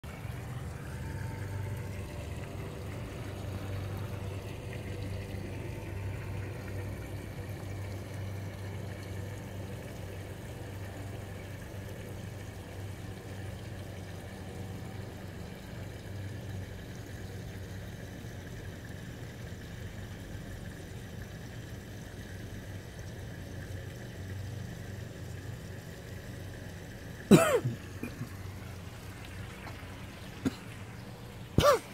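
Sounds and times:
machinery humming: 0:00.0 - 0:15.6.

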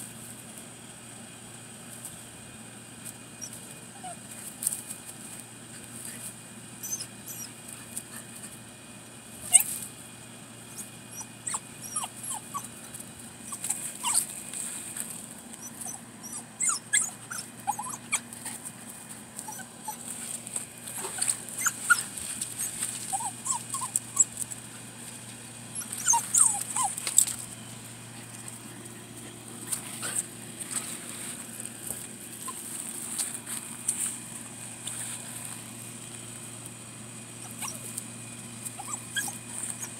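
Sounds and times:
dog whimpering: 0:06.8 - 0:07.5, 0:09.5 - 0:09.7, 0:10.8 - 0:12.7, 0:13.5 - 0:14.2, 0:15.6 - 0:18.6, 0:19.5 - 0:20.0, 0:21.0 - 0:24.3, 0:25.7 - 0:27.0, 0:37.4 - 0:38.0, 0:38.8 - 0:39.9
rustling in dry leaves: 0:12.6 - 0:15.9, 0:17.5 - 0:39.9.

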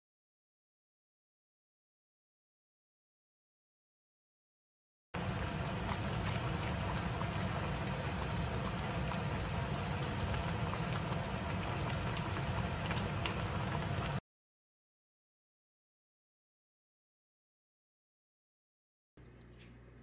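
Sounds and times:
pot bubbling with small pops: 0:05.2 - 0:14.2.

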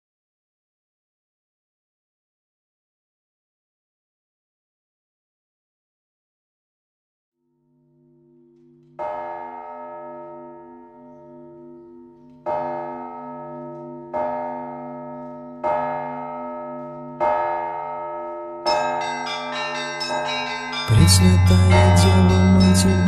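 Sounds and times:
large church bell ringing: 0:07.8 - 0:23.0.

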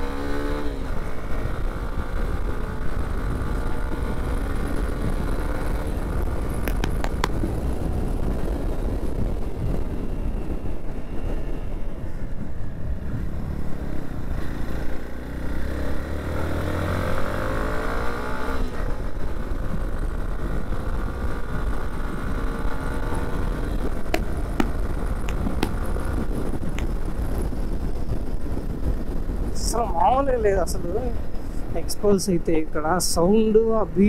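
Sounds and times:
road noise: 0:00.0 - 0:34.0
wind noise: 0:00.0 - 0:34.0
motorcycle engine running: 0:18.7 - 0:30.2.

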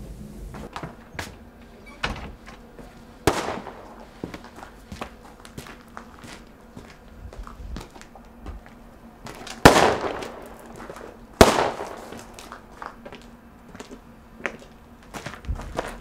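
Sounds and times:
loud bangs with echo: 0:03.3 - 0:04.1, 0:09.6 - 0:10.8, 0:11.4 - 0:12.3.

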